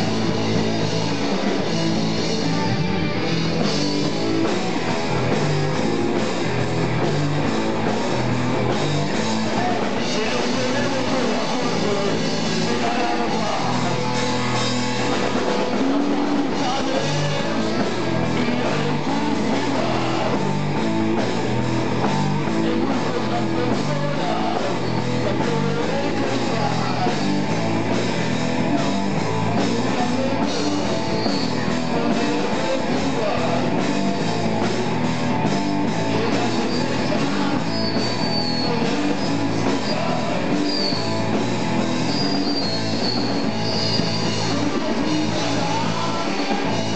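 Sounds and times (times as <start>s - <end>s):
bass line: 0.0s - 46.9s
electric guitar: 0.0s - 46.9s
live rock band playing: 0.0s - 46.9s.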